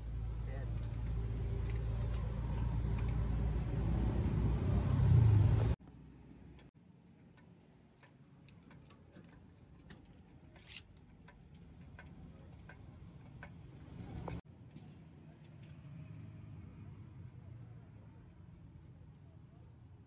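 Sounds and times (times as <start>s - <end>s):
vehicle engine rumbling: 0.0s - 6.7s, 9.2s - 15.9s.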